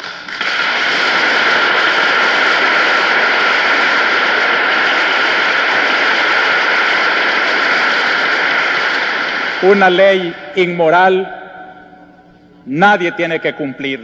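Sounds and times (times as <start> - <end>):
crowd applauding: 0.0 - 10.4.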